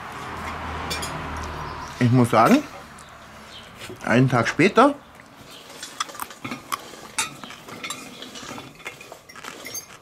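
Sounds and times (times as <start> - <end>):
cutlery clinking on plates: 0.9 - 1.2, 5.6 - 9.9.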